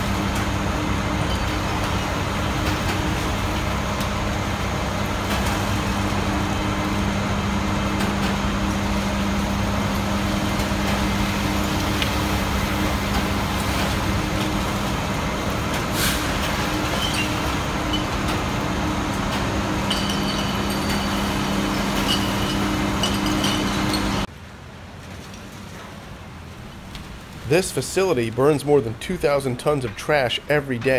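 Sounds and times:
truck engine running: 0.0 - 24.3
unloading machinery humming: 0.0 - 24.3.

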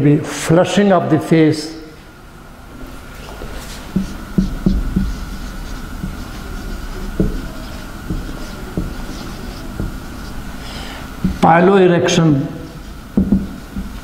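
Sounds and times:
steady low hum: 0.0 - 14.0
marker squeaking on whiteboard: 2.8 - 11.7, 12.5 - 14.0.

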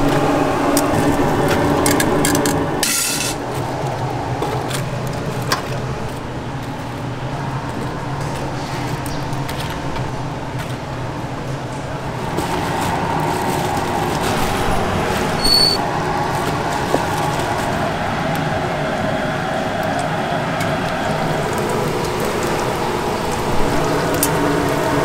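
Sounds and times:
busy market background noise: 0.0 - 25.0
high electronic beep: 15.4 - 15.8.

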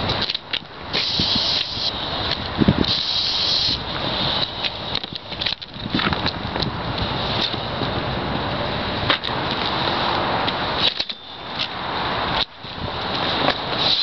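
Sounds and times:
aerosol spray can hissing: 1.0 - 2.1, 2.9 - 4.4, 13.8 - 14.0.

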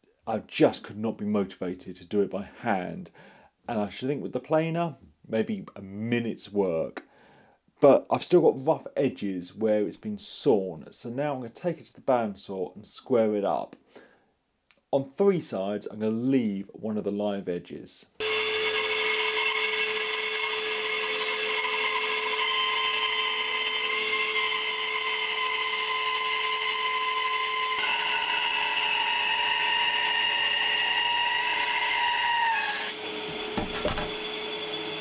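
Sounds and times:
bandsaw cutting wood: 18.2 - 35.0.

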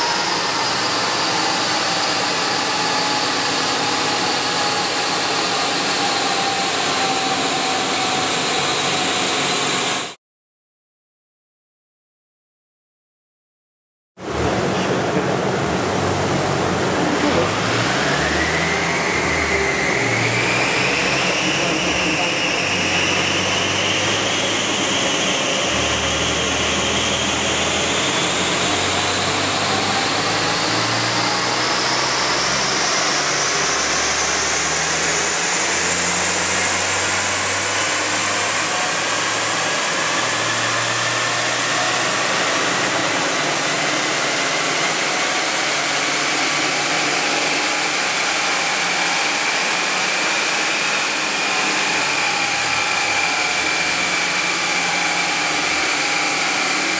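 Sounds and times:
rising whine: 0.0 - 10.2, 14.2 - 56.9
car engine and roller noise: 14.2 - 56.9.

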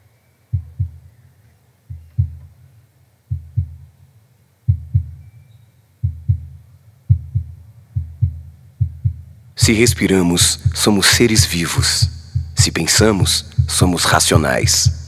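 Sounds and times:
heartbeat double thumps: 0.5 - 1.1, 1.9 - 2.6, 3.3 - 4.0, 4.7 - 5.2, 6.0 - 15.0.

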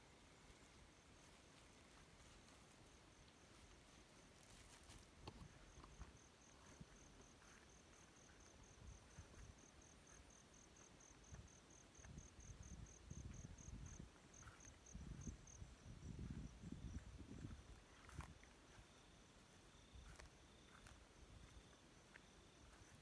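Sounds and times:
faint insect chirping: 0.0 - 23.0.

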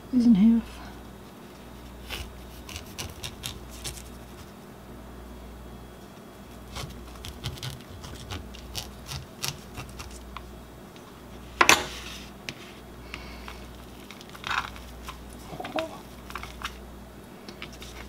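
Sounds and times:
knife cutting crisp potato skin: 1.9 - 4.5, 6.5 - 10.5.

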